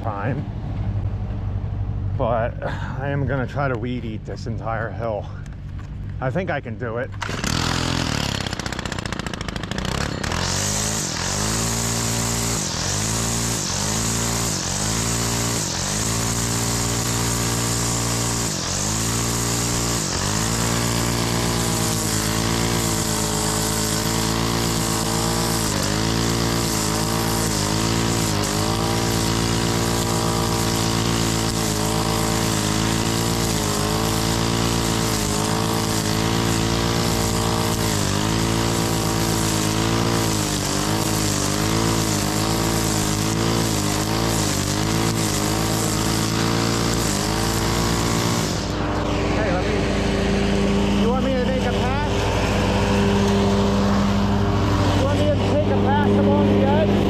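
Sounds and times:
string trimmer cutting grass: 3.3s - 57.0s.

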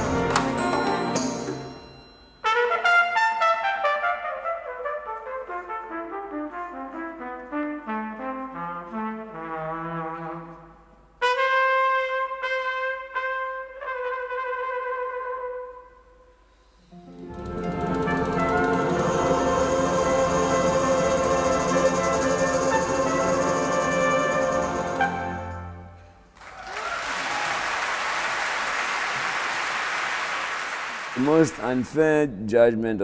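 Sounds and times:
solo flugelhorn playing: 2.4s - 16.1s.

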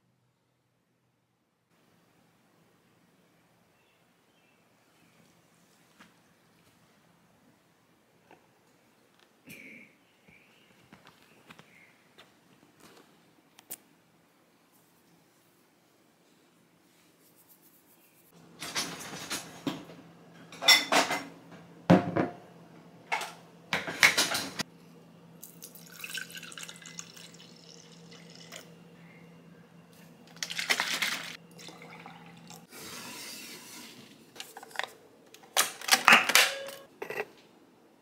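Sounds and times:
dishes and utensils clinking: 20.4s - 21.4s, 35.8s - 37.3s
steady low hum: 24.6s - 30.5s
water running: 25.4s - 28.8s, 30.2s - 34.2s.

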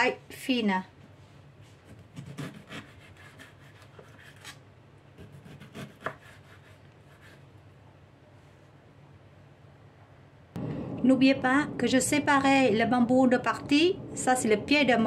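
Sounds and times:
knife slicing on wooden board: 5.2s - 7.4s.

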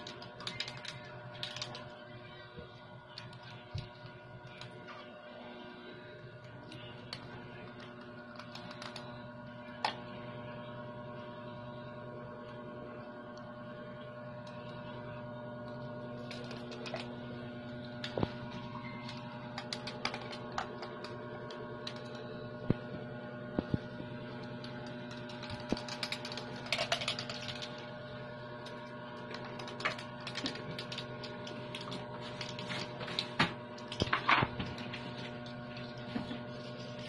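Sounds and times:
steady hum: 0.0s - 37.0s.

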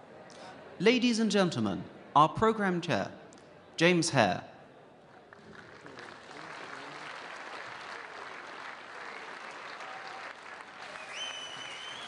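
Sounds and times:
audience applauding: 5.2s - 12.0s
short high whistle: 11.0s - 12.0s.

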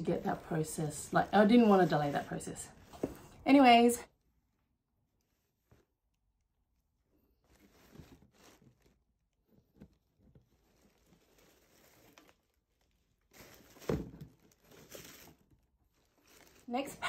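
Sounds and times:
fabric rustling: 0.0s - 3.4s, 5.0s - 17.0s
paper packing crinkling: 7.3s - 17.0s.

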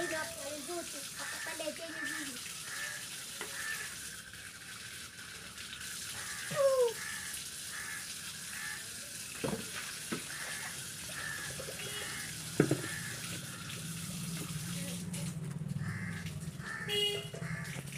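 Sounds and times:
running water hissing: 0.0s - 16.2s
sharp knocks: 12.6s - 13.0s.

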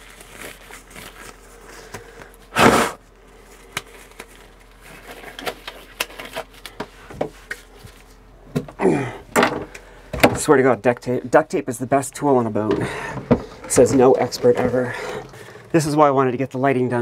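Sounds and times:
rubber gloves rustling: 0.0s - 8.3s.

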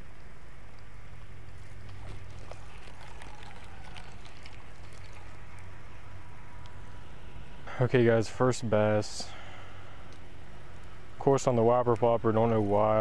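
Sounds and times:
steady low hum: 0.0s - 13.0s
light water splashes: 1.5s - 7.0s.

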